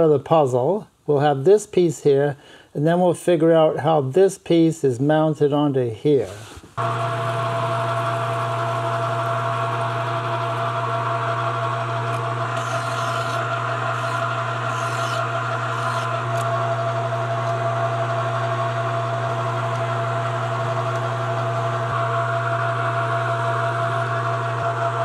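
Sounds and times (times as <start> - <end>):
metal lathe motor hum: 6.8 - 25.0.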